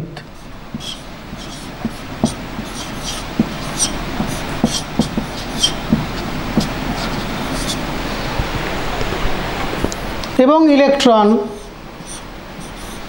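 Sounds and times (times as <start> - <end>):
marker squeaking on whiteboard: 0.4 - 7.8, 11.5 - 13.0.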